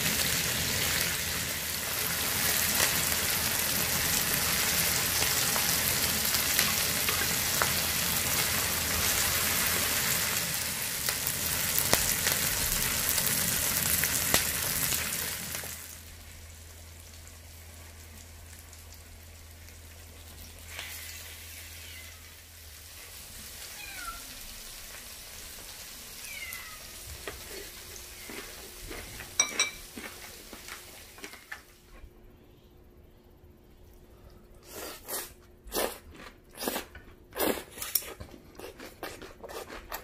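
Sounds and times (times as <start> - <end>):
meat sizzling on a griddle: 0.0 - 16.2, 20.6 - 28.6
cat meowing: 21.6 - 22.4, 23.6 - 24.5, 26.1 - 27.0.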